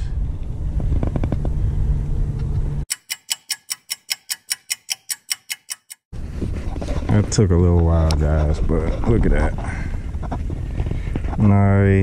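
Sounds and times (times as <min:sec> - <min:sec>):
low steady rumble: 0:00.0 - 0:02.9
clock ticking: 0:02.9 - 0:06.1.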